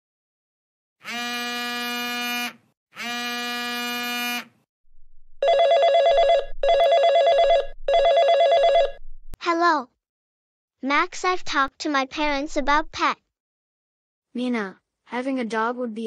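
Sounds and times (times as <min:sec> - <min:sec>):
phone ringing in warbling bursts: 0:05.4 - 0:09.0.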